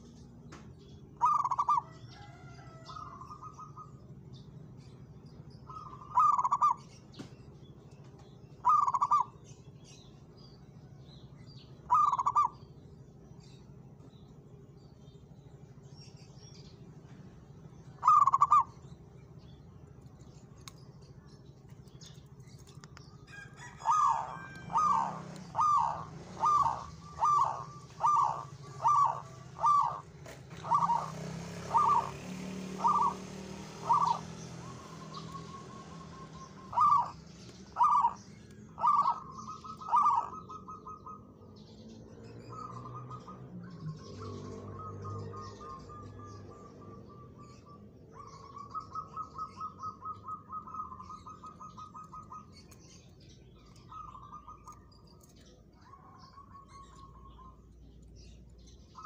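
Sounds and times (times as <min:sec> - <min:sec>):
dove cooing: 0:01.1 - 0:04.0, 0:05.7 - 0:06.8, 0:08.6 - 0:09.4, 0:11.8 - 0:12.6, 0:18.0 - 0:18.8, 0:23.3 - 0:41.4, 0:42.4 - 0:52.8, 0:53.6 - 0:57.6.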